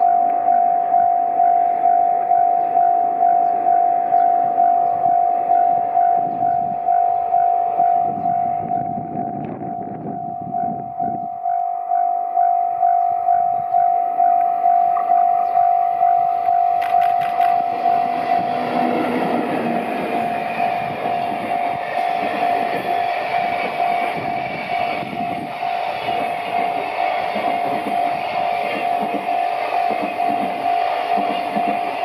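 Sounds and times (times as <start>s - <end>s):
electric locomotive passing: 0.0s - 32.0s
repeating ringing tone: 0.0s - 32.0s
sharp clicks: 16.8s - 17.6s.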